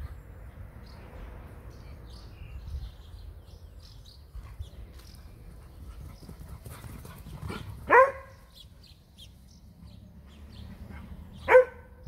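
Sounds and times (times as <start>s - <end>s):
dog barking: 7.9s - 8.4s, 11.4s - 12.0s.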